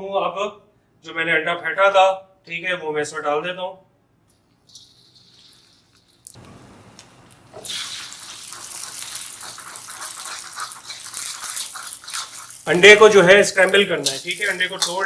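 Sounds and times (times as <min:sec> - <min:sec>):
egg sizzling in hot oil: 0:04.7 - 0:15.0
metal ladle stirring in wok: 0:07.6 - 0:15.0.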